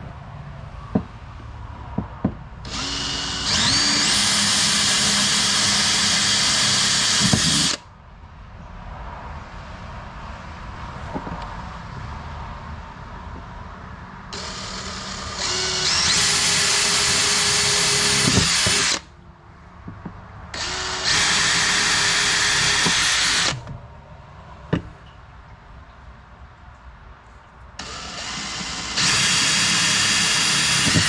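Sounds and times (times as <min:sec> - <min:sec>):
cordless drill drilling: 0:02.7 - 0:07.8, 0:14.4 - 0:19.1, 0:20.6 - 0:23.7, 0:27.8 - 0:31.0.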